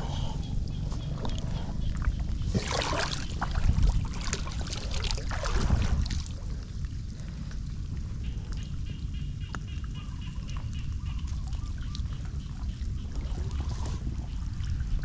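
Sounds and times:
wind rumble on microphone: 0:00.0 - 0:15.0
floodwater splashing: 0:02.5 - 0:06.8.

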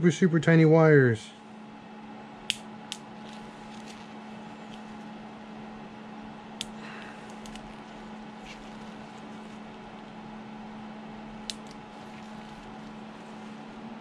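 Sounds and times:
steady low hum: 0:00.0 - 0:14.0
side cutters snipping: 0:11.5 - 0:13.0.

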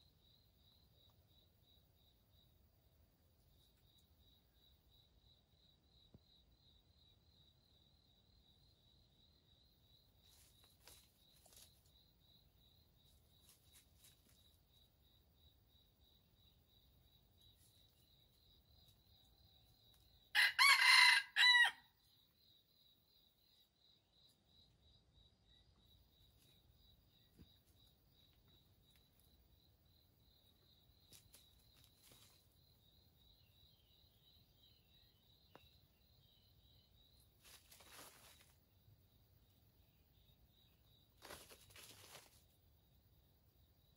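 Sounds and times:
rooster crowing: 0:20.3 - 0:21.9.

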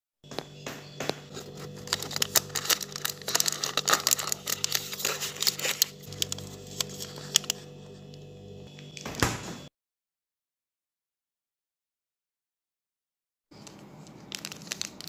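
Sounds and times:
plastic wrapper crinkling: 0:01.2 - 0:08.0, 0:13.6 - 0:15.0.

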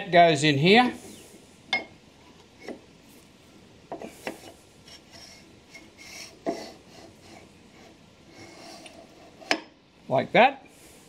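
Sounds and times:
steel shaft scraping in tube: 0:04.2 - 0:09.6.

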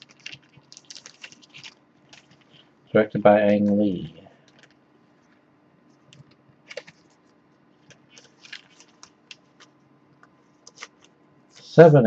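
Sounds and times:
plastic sleeve crinkling: 0:00.0 - 0:02.8, 0:04.4 - 0:09.8, 0:10.6 - 0:11.7.

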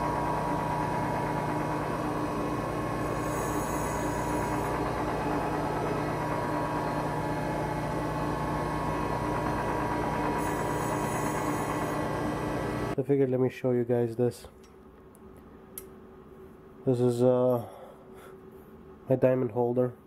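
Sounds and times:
grinder motor hum: 0:00.0 - 0:13.0.

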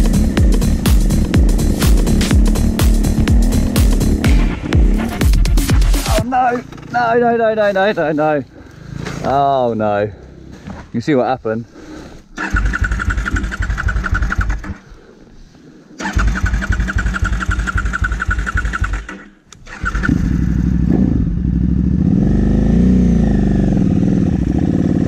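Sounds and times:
motorcycle engine revving: 0:00.0 - 0:07.7, 0:08.6 - 0:10.8, 0:12.4 - 0:14.8, 0:16.0 - 0:25.0
man talking: 0:06.0 - 0:08.5, 0:09.2 - 0:10.2, 0:10.9 - 0:11.7
electric starter cranking: 0:12.4 - 0:14.8, 0:16.0 - 0:20.6.

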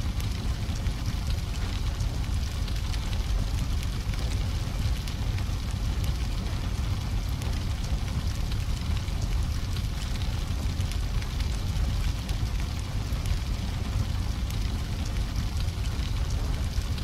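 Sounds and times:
crackles: 0:00.0 - 0:17.0.

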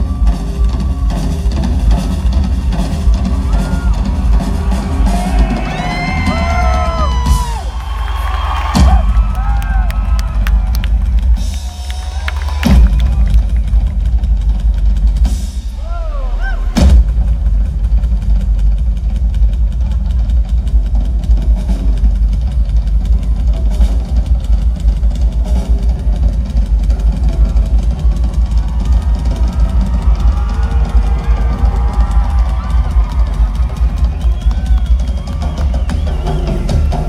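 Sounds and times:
live band playing: 0:00.0 - 0:14.4, 0:23.1 - 0:37.0.

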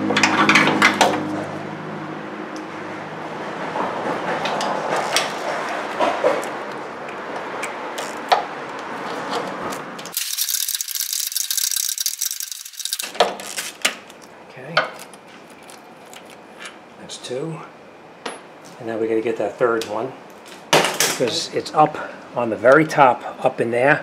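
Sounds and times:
high-pitched rattling: 0:10.1 - 0:13.6
ratchet wrench clicking: 0:10.1 - 0:13.6.

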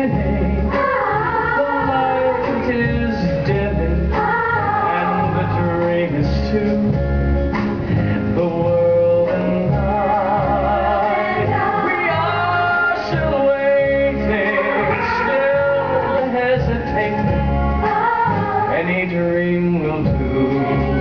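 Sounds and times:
choir singing: 0:00.0 - 0:02.9, 0:04.1 - 0:05.8, 0:09.8 - 0:19.1, 0:20.2 - 0:21.0
man singing with vibrato: 0:00.0 - 0:07.0, 0:08.1 - 0:21.0
orchestra playing: 0:09.8 - 0:18.0.

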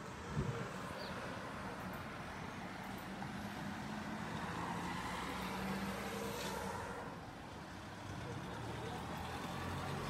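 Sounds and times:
road noise: 0:00.0 - 0:10.0.

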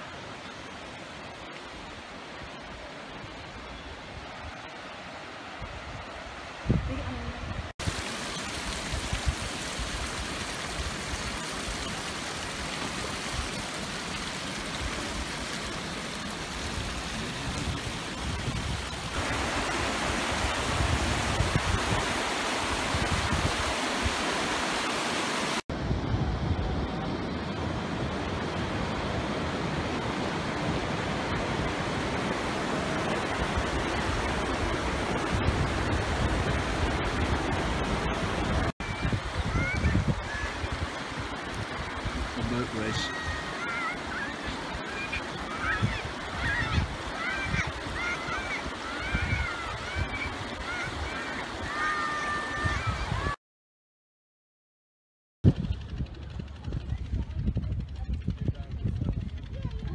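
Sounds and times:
river rushing over stones: 0:07.6 - 0:25.6, 0:27.6 - 0:53.3.

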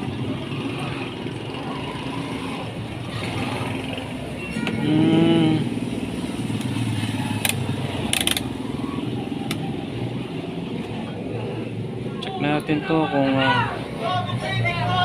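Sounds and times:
sharp clicks: 0:07.4 - 0:08.5.

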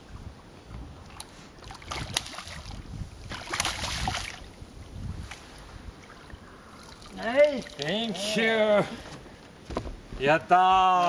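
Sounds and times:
fish splashing and thrashing: 0:01.0 - 0:04.6.

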